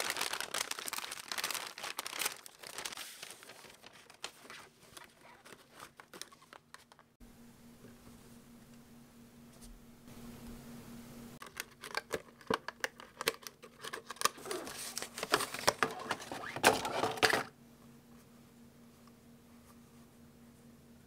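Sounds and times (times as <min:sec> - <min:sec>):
plastic packaging clicks and crinkles: 0:00.0 - 0:07.2, 0:11.4 - 0:17.5.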